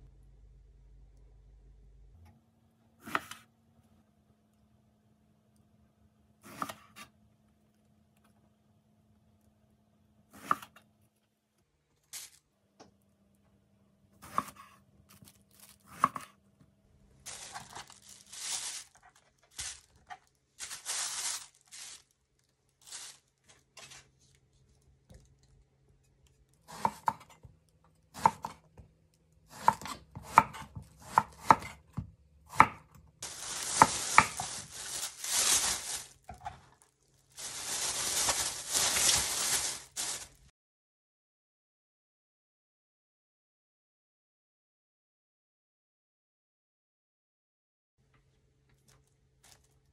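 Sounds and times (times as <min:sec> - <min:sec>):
plastic bag crinkling: 0:12.0 - 0:12.4, 0:15.2 - 0:15.8, 0:17.3 - 0:24.6, 0:33.2 - 0:40.5, 0:48.9 - 0:49.9.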